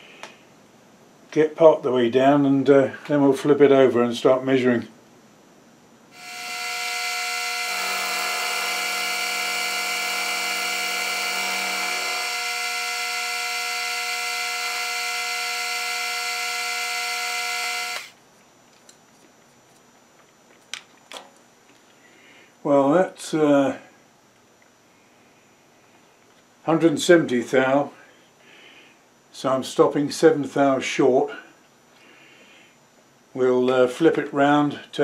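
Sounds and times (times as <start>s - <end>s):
end mill cutting metal: 6.2s - 18.1s
milling machine whining: 6.2s - 18.2s.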